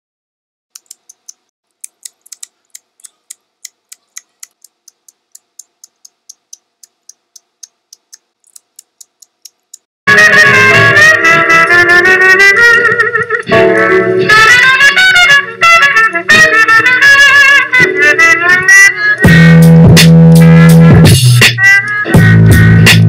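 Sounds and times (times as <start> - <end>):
rapid light clicks: 0.8 - 9.9
music: 10.1 - 23.0.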